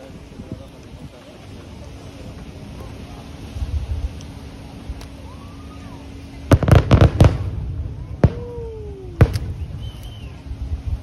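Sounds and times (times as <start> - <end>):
fireworks bangs: 6.0 - 10.4.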